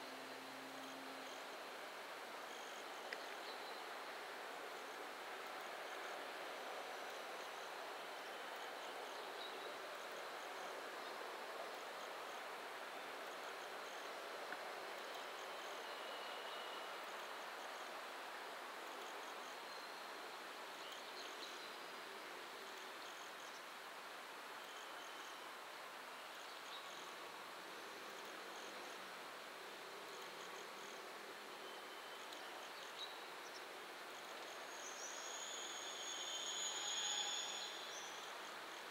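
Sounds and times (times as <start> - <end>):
insects chirping: 29.8 - 38.8.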